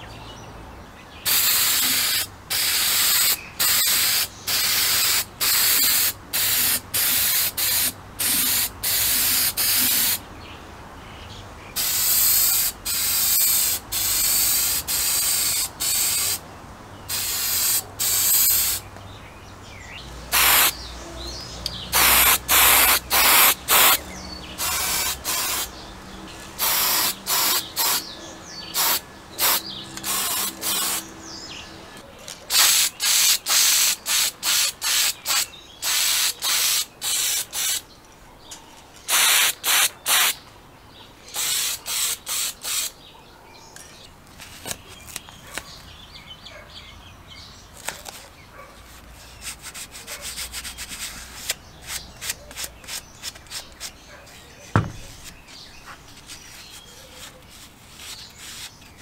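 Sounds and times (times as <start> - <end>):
aerosol spray can hissing: 1.3 - 10.2, 11.8 - 16.4, 17.1 - 18.8, 20.3 - 20.8, 22.0 - 24.0, 24.6 - 25.7, 26.6 - 28.1, 28.7 - 31.1, 32.5 - 37.8, 39.1 - 40.4, 41.4 - 42.9.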